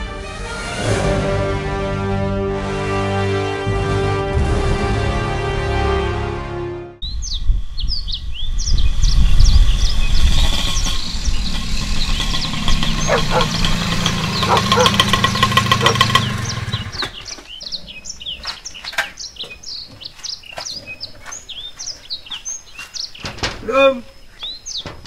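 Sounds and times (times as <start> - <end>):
birds chirping: 7.0 - 25.0
small motorcycle engine running: 9.6 - 17.4.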